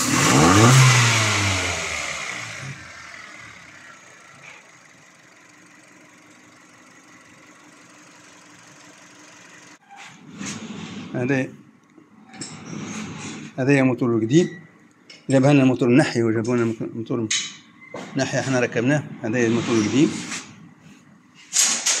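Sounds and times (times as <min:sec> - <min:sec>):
car engine idling: 0:00.0 - 0:09.8.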